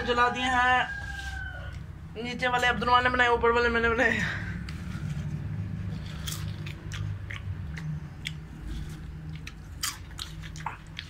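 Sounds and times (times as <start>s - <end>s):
person chewing popcorn: 4.6s - 11.0s.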